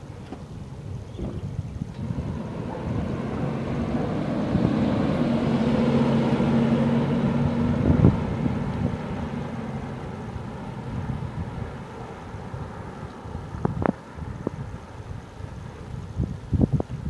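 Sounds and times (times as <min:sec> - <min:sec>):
wind on microphone: 0:00.0 - 0:17.0
minivan passing: 0:01.9 - 0:15.0.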